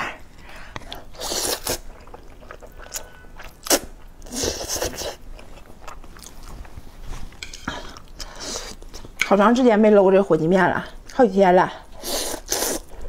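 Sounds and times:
person slurping noodles: 1.1s - 1.8s, 12.0s - 12.9s.

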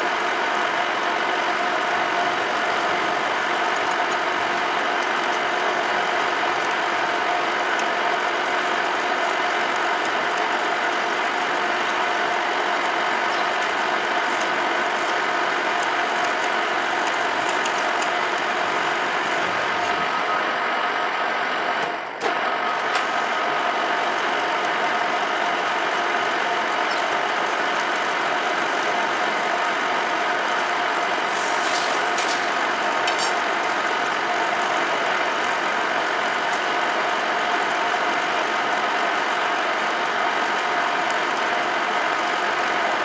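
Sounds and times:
metal lathe humming and whining: 0.0s - 43.0s
hiss of cutting tool: 31.2s - 32.5s.

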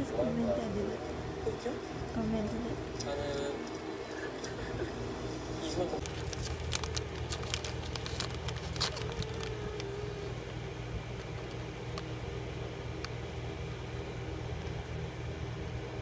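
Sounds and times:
steady low hum: 0.0s - 16.0s
plastic wrapper crinkling: 6.0s - 10.4s, 11.1s - 12.2s.

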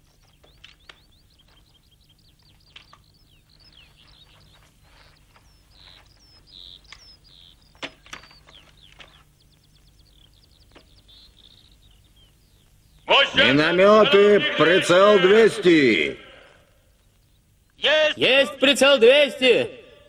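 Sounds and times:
faint steady hum: 0.0s - 20.0s
small birds chirping: 0.0s - 20.0s
sharp clicks: 6.8s - 9.2s.

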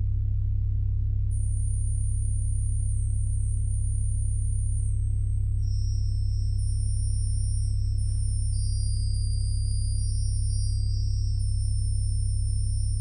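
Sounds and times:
pipe organ bass notes: 0.0s - 13.0s
high sustained tones: 3.8s - 13.0s.

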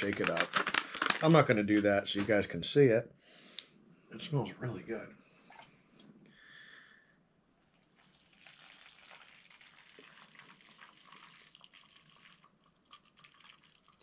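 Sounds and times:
water trickling into a cup: 7.7s - 14.0s.

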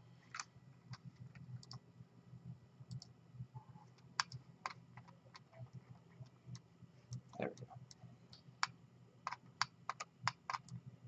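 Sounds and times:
low steady hum: 0.0s - 11.0s
computer mouse clicks: 0.3s - 1.8s, 2.9s - 3.1s, 3.9s - 10.8s.

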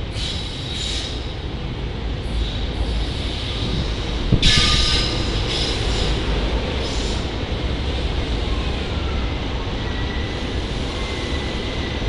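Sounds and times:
train rumbling past: 0.0s - 12.0s
hiss: 0.1s - 1.3s, 6.8s - 7.3s.

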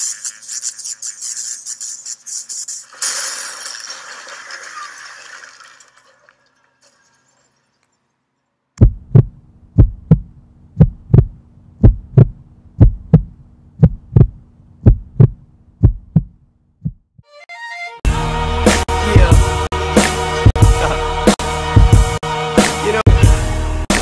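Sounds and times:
steady low hum: 8.8s - 17.0s
heartbeat thumps: 8.8s - 17.2s, 21.8s - 22.2s.

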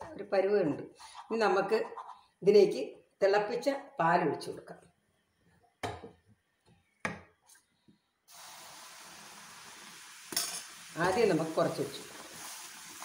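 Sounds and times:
milk sizzling in hot pan: 8.3s - 13.0s.

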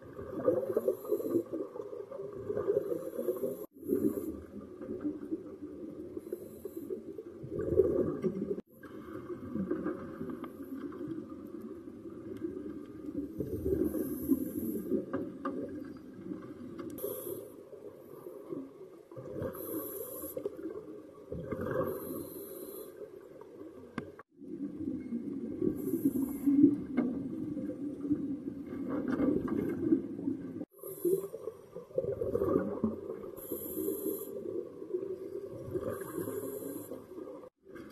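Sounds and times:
underwater exhaled bubbles: 0.0s - 37.9s
diver breathing through regulator: 13.8s - 15.0s, 33.4s - 34.4s, 35.9s - 37.1s
hissing regulator breaths: 33.4s - 34.4s.

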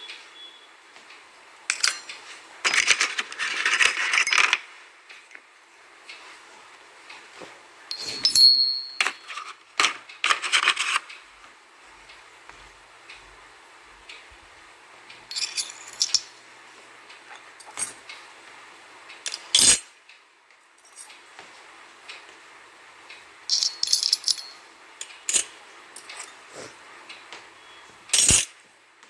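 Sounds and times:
toy dishes and spoons clinking: 15.3s - 16.3s, 23.5s - 26.4s.

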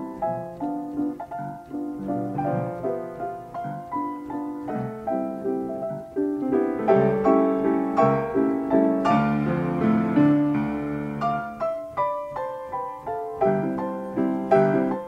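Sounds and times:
player piano playing a waltz: 0.0s - 15.0s.

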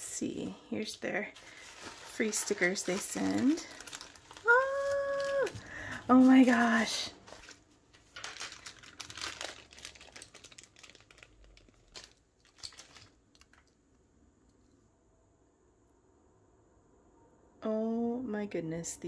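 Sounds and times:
plastic bag crinkling: 1.3s - 13.8s
small clicks and rustles: 7.3s - 13.8s.

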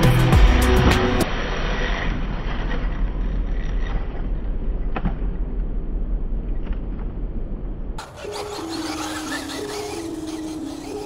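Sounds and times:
toy truck rushing over grass: 1.2s - 4.5s, 8.0s - 11.0s.

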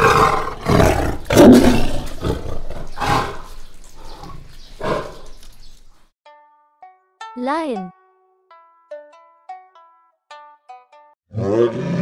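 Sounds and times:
tiger roaring: 0.0s - 5.3s, 11.3s - 12.0s.

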